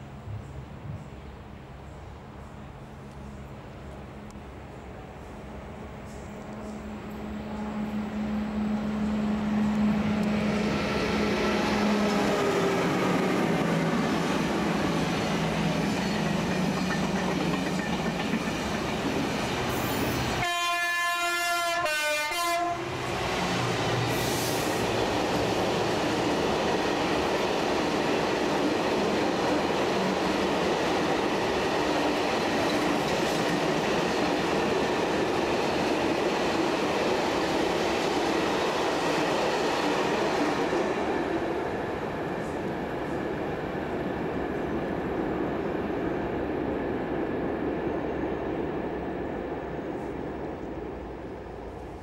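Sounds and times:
freight train rumbling on rails: 0.0s - 52.0s
train rushing past: 0.0s - 52.0s
train horn: 6.6s - 10.6s, 20.2s - 23.0s.

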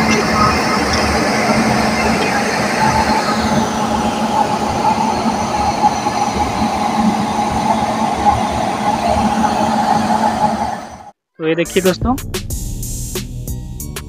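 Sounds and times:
electric locomotive hum and whine: 0.0s - 11.2s.

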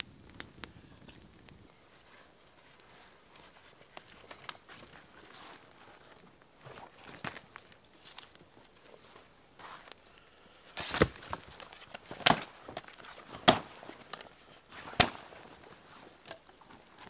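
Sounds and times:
sticks snapping: 10.8s - 15.4s, 16.2s - 17.0s.

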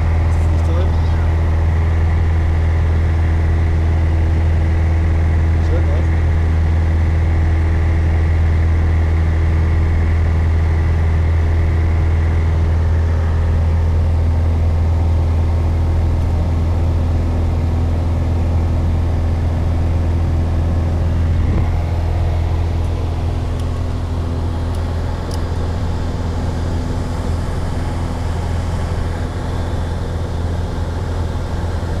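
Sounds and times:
propeller plane engine droning: 0.0s - 32.0s.

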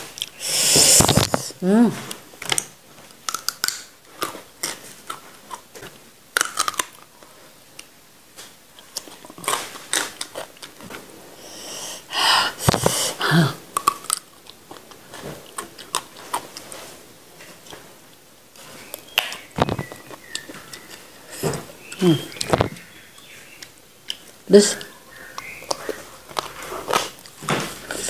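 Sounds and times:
chewing wet crunches and snaps: 2.4s - 7.2s, 8.8s - 10.9s, 13.7s - 16.8s, 21.8s - 28.0s.

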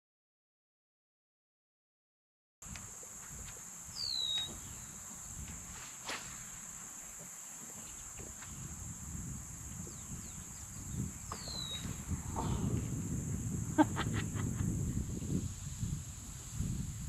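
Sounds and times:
insects droning: 2.6s - 17.0s
bird down-slurred whistle: 4.0s - 4.8s, 11.3s - 12.7s.

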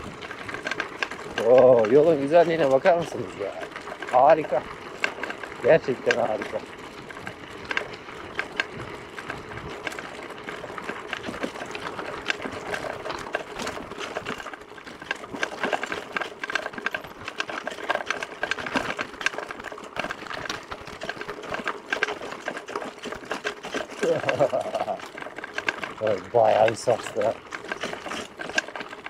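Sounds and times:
mountain bike rattling on dirt: 0.0s - 29.0s.

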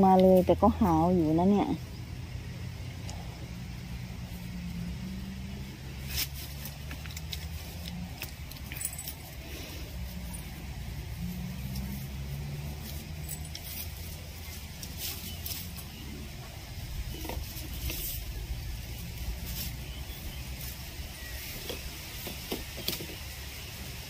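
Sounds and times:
steady low hum: 0.0s - 22.4s.

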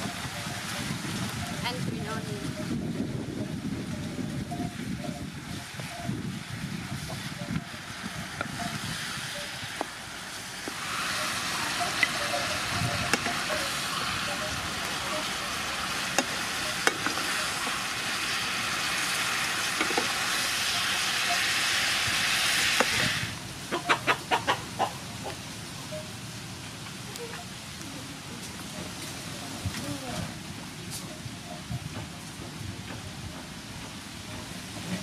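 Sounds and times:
food sizzling in frying pan: 3.4s - 24.2s.

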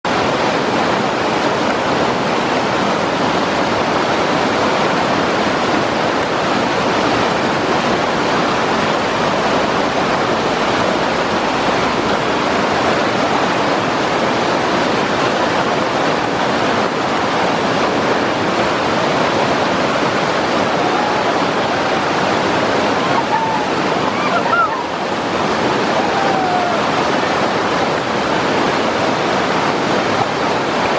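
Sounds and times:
river rapids rushing: 0.1s - 30.9s.

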